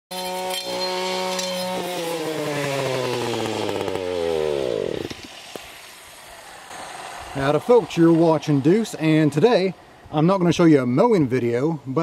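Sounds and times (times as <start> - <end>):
string trimmer engine winding down: 0.1 - 5.5.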